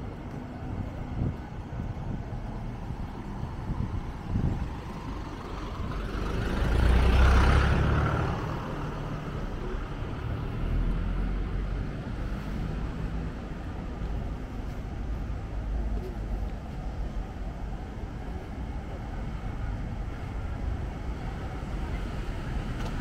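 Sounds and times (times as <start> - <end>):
low rumble of traffic: 0.0 - 23.0
vehicle passing close by: 5.8 - 13.6.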